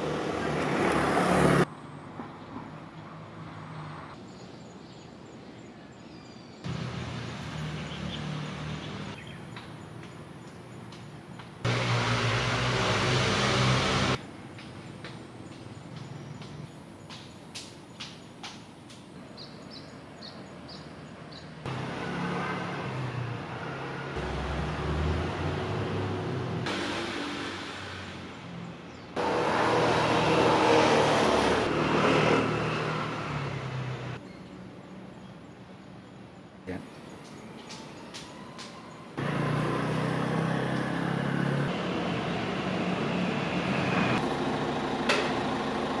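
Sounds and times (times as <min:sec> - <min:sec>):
street ambience: 0:00.0 - 0:46.0
motor vehicle rumble: 0:06.7 - 0:14.6, 0:21.1 - 0:35.4, 0:39.2 - 0:46.0
vehicle engine running: 0:11.7 - 0:14.2, 0:44.2 - 0:46.0.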